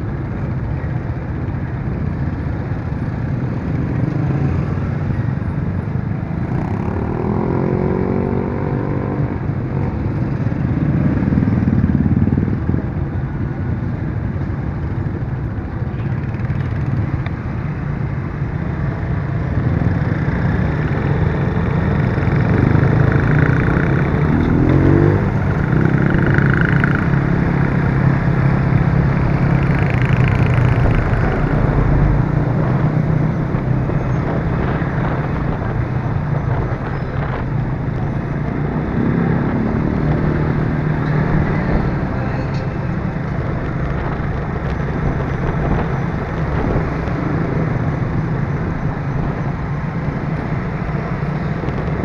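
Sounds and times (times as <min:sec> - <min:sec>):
nearby motorbike engines: 0:00.0 - 0:52.0.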